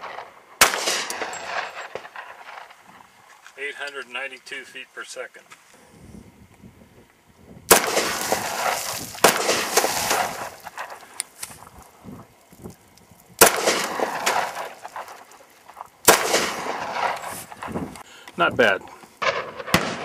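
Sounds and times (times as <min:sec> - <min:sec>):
pistol shots ringing out: 0:00.0 - 0:02.8, 0:07.7 - 0:11.0, 0:13.4 - 0:15.3, 0:16.0 - 0:17.7, 0:19.2 - 0:20.0.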